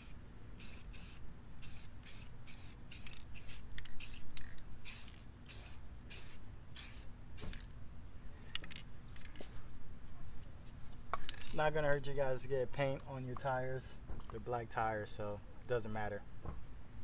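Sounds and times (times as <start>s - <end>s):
spray paint can hissing: 0.0s - 7.7s.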